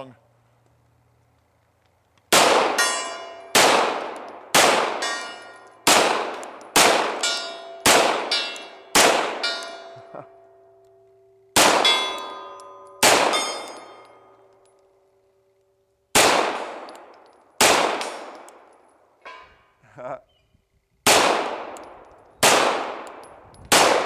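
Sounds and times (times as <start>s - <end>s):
pistol shots: 2.3s - 10.0s, 11.6s - 14.2s, 16.1s - 18.8s, 21.0s - 24.0s
steel gong clanging: 9.4s - 10.1s.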